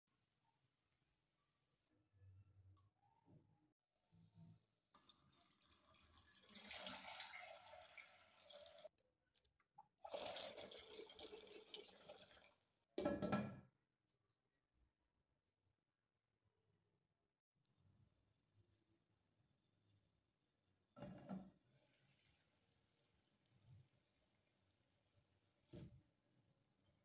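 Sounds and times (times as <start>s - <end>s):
water pouring into a pot: 5.0s - 8.9s, 10.0s - 12.7s.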